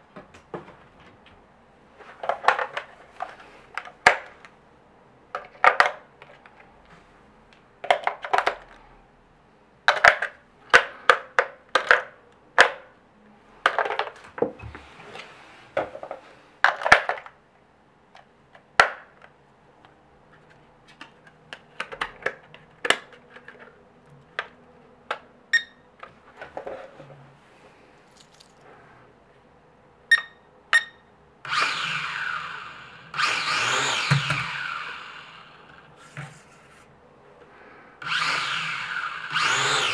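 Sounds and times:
short beeps: 30.1 - 31.0
quadcopter motors whirring: 31.5 - 35.9, 38.0 - 39.9.

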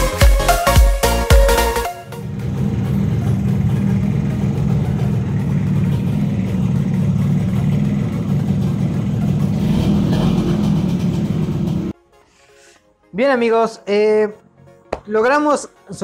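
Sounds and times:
motorcycle engine idling: 2.2 - 11.9.

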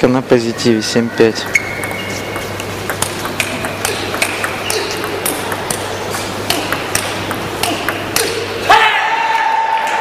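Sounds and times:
table tennis ball clicking: 1.4 - 8.4.

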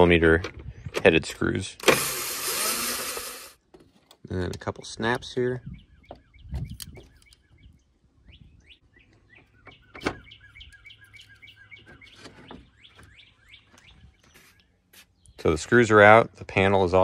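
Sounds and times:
small birds chirping: 4.7 - 15.8.

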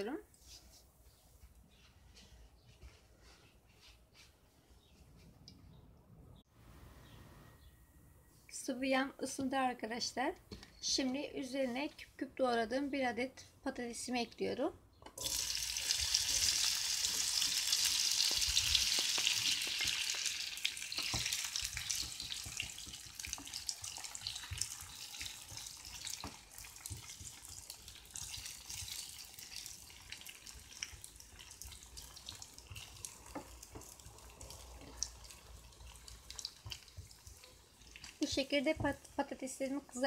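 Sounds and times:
potatoes sizzling in oil: 15.2 - 40.0.

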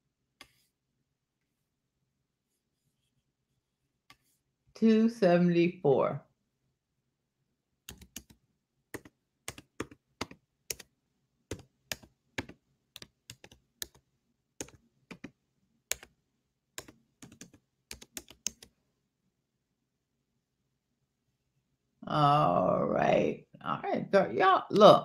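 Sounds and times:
typing on computer keyboard: 7.9 - 8.4, 9.0 - 10.9, 11.5 - 14.0, 14.6 - 16.1, 16.8 - 18.7.

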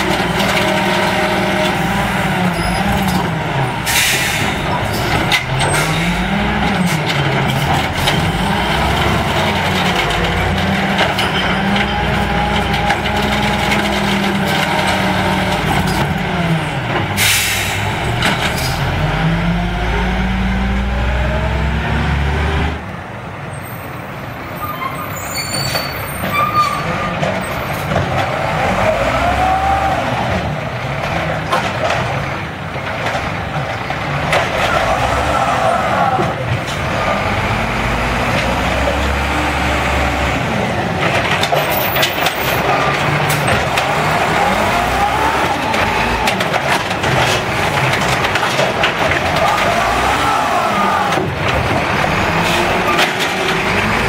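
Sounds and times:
hydraulic arm emptying carts: 0.0 - 20.1, 25.5 - 54.0
garbage truck engine revving: 0.0 - 23.0, 26.8 - 54.0.

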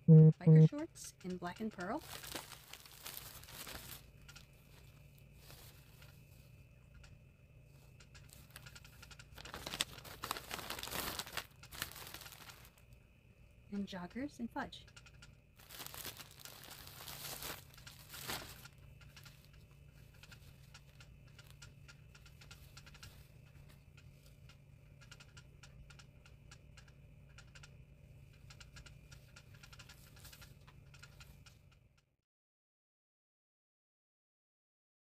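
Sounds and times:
small clicks: 0.1 - 12.9, 14.8 - 32.1
packaging crinkling: 2.0 - 4.4, 9.4 - 12.9, 15.6 - 19.3
package tearing: 9.4 - 12.7, 15.6 - 18.6.

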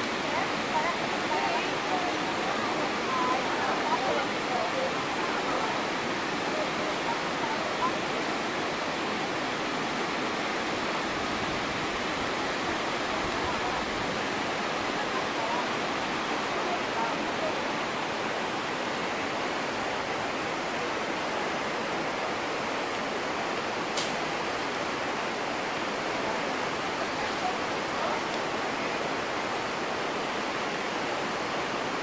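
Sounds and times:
river rapids rushing: 0.0 - 32.0
brief click: 24.0 - 24.2.

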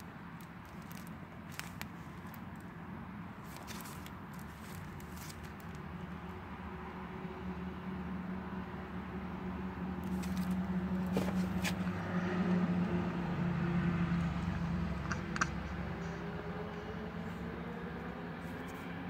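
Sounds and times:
truck engine hum: 0.0 - 19.0
sharp clicks: 15.0 - 16.2.

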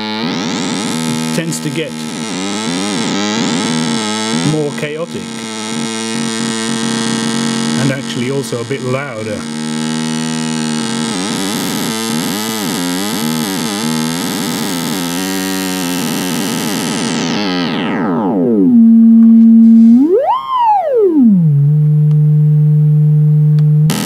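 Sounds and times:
harsh buzzy synthesizer tone: 0.0 - 24.0
steady tone sweeping in pitch: 15.8 - 24.0.

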